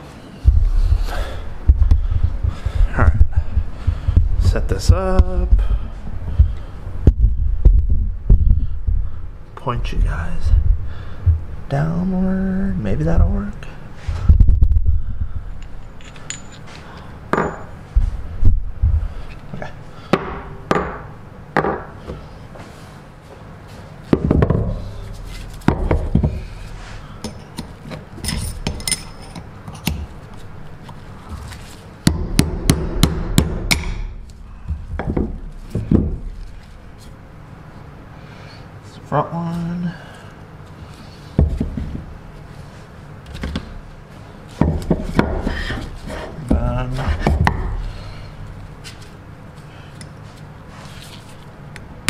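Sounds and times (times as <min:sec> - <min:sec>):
hammer striking metal: 0:32.1 - 0:34.1.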